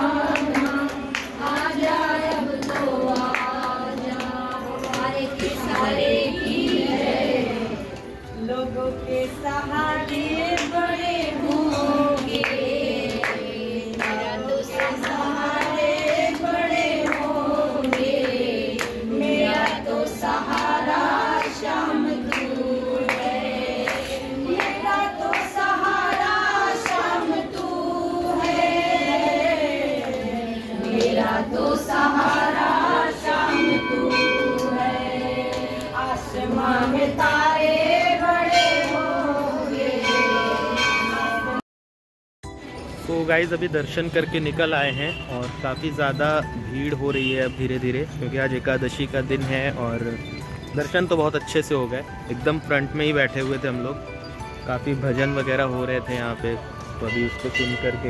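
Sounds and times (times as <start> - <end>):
group singing devotional song: 0.0 - 41.6.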